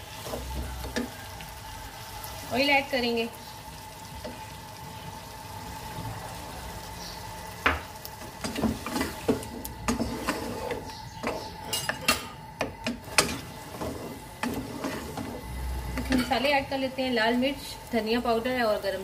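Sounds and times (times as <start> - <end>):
wooden spoon scraping wok: 0.0 - 1.2, 8.2 - 12.2, 12.8 - 16.6
light sizzle: 0.0 - 19.0.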